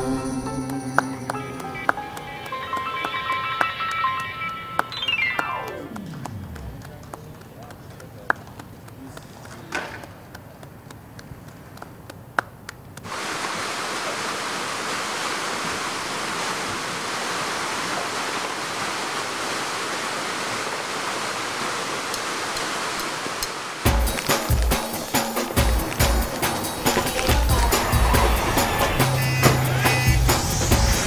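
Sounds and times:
fountain water cascading: 0:13.0 - 0:31.0.

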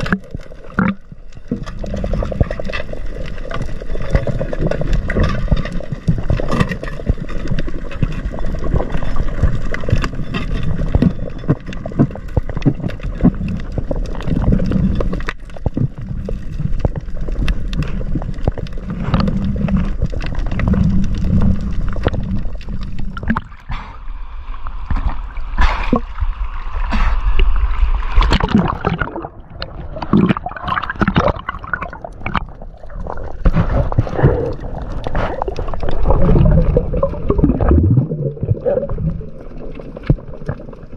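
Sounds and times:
underwater gurgling and sloshing: 0:00.0 - 0:40.9.

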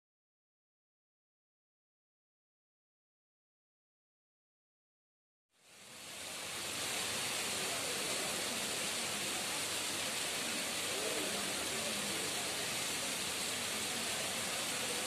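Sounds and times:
steady outdoor hiss: 0:05.6 - 0:15.0.

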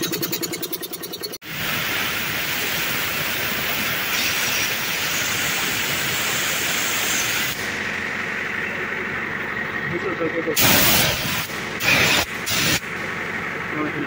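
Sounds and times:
compressed air hissing: 0:01.5 - 0:07.8, 0:10.6 - 0:12.8.

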